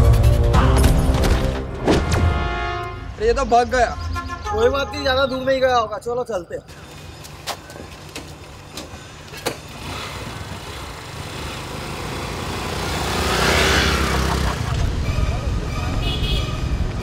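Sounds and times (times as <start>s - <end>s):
motorcycle engines passing: 9.2s - 17.0s.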